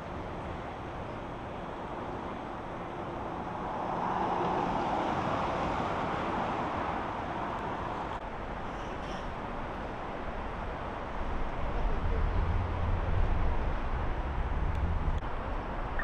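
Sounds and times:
street traffic: 0.0s - 16.0s
vehicle passing: 11.2s - 16.0s.

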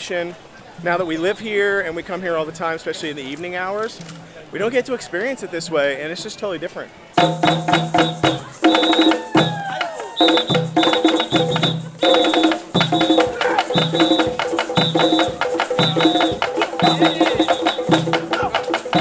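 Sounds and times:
hand drums playing fast: 7.2s - 19.0s.

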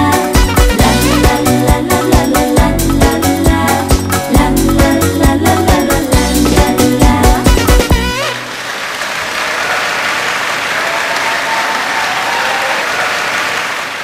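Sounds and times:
dance-pop song with heavy beat: 0.0s - 8.1s
applause: 8.2s - 14.0s.

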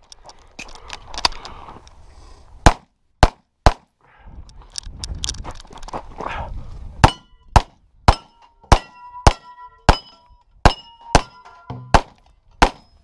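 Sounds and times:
pistol shots: 7.0s - 10.1s, 10.7s - 12.9s
steel target ringing: 8.1s - 12.0s.

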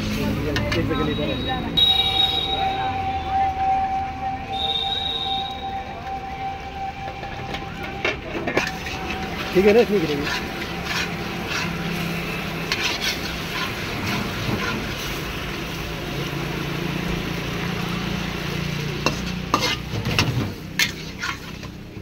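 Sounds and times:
spatula scraping a wok: 8.2s - 16.4s, 17.4s - 22.0s
sauce sizzling in wok: 8.6s - 22.0s.

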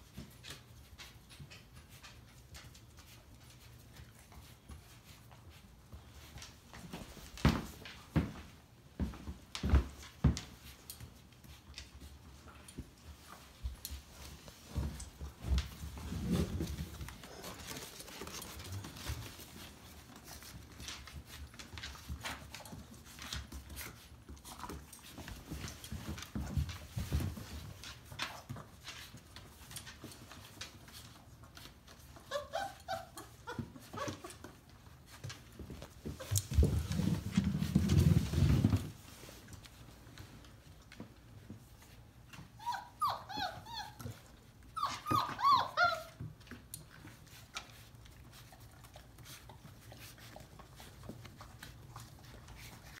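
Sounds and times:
puppy squeaks: 32.2s - 34.3s, 42.6s - 46.2s.

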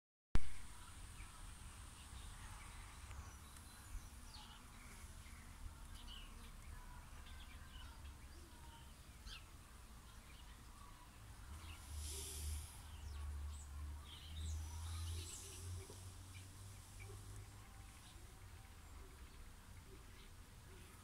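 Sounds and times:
brief hiss: 11.6s - 13.2s.

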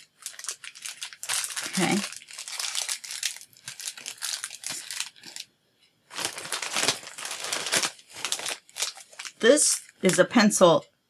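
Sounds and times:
plastic packaging crinkling: 0.0s - 5.5s, 6.1s - 10.3s.

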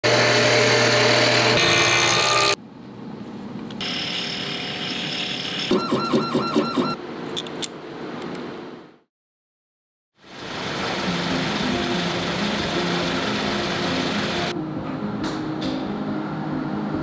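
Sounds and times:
drill boring into wood: 0.1s - 2.6s
rhythmic warbling machine: 5.7s - 7.0s
small motor spinning polishing wheel: 10.4s - 14.5s.

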